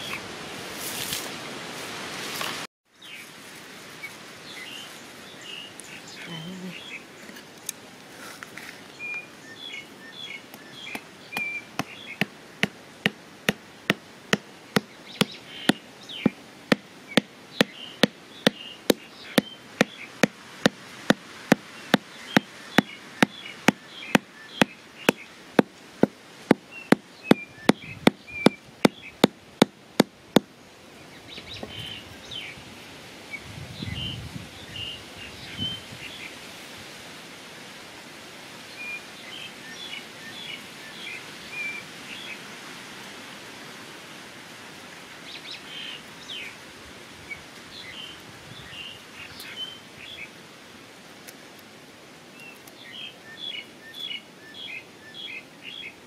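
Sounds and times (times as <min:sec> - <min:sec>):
small birds chirping: 0:04.0 - 0:32.6, 0:47.3 - 0:50.4, 0:52.3 - 0:56.0.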